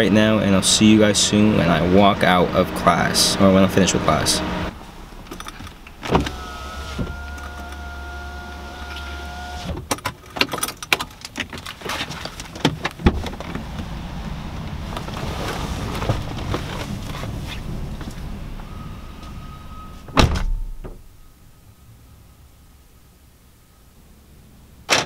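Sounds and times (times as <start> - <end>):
power window motor whining: 1.4 - 9.8
rustling of handled objects: 10.0 - 13.8.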